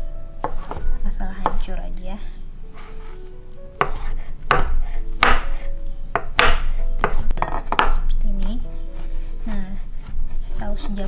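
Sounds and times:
knife chopping on wooden board: 0:00.4 - 0:01.7, 0:03.8 - 0:05.6, 0:06.2 - 0:08.1.

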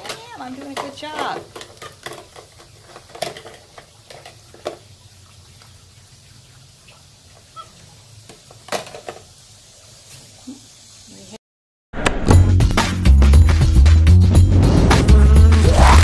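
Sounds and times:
plastic dishes clicking and knocking: 0:00.0 - 0:04.8.

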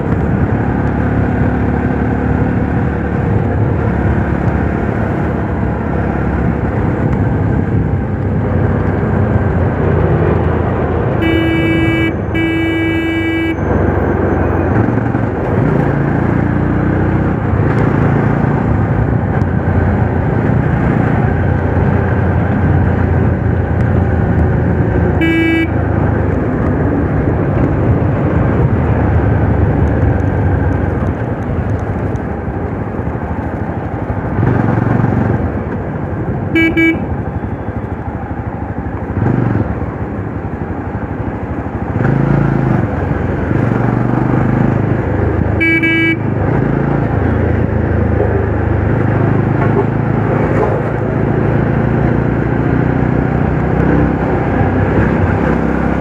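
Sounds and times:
road and wind noise: 0:00.0 - 0:56.0
horn beeps: 0:11.2 - 0:14.7, 0:25.2 - 0:25.8, 0:36.5 - 0:37.8, 0:45.6 - 0:46.3.

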